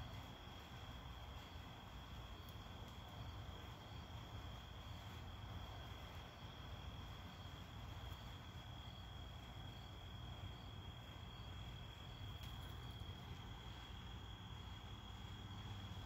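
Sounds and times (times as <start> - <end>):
crickets trilling: 0.0 - 16.0
faint insect chirp: 0.0 - 16.0
low steady rumble: 0.0 - 16.0.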